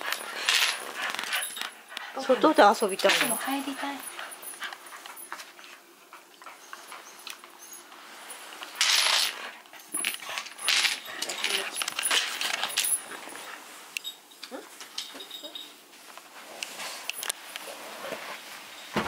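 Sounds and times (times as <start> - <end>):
leash chain and collar jingling: 0.0 - 5.8, 6.4 - 14.4, 15.0 - 15.8.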